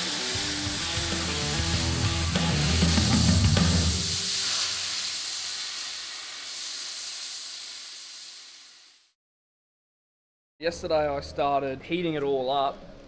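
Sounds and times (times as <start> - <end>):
plasma cutter hissing: 0.0 - 9.1.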